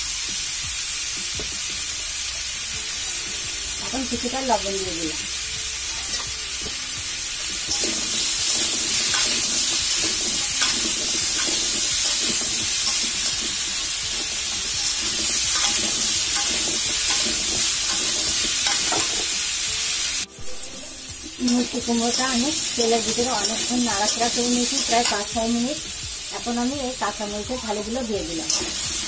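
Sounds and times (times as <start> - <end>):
vegetables sizzling in hot oil: 0.0 - 29.0
spatula scraping and knocking pan: 7.5 - 19.4.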